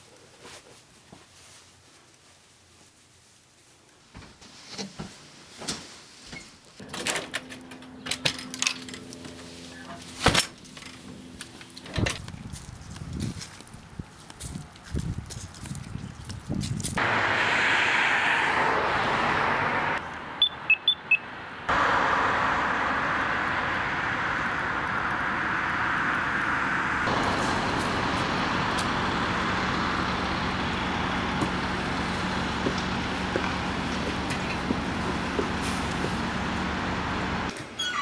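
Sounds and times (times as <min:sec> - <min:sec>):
cars passing: 0:17.0 - 0:37.5.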